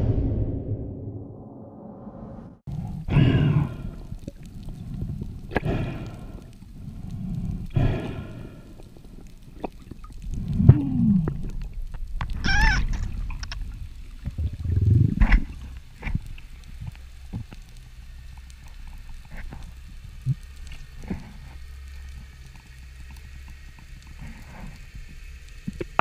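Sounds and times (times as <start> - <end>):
underwater moans and creaks: 2.7 - 26.0
underwater low thuds: 9.7 - 17.5.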